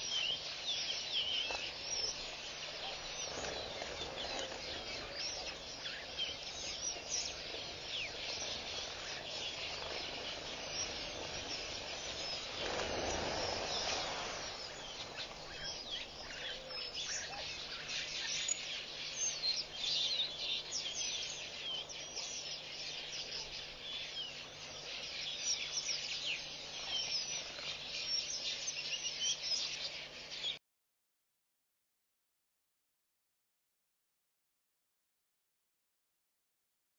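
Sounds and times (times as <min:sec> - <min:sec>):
steady hiss: 0:00.0 - 0:30.5
birds chirping and calling: 0:00.0 - 0:30.6
loud rushing noise: 0:11.0 - 0:15.2.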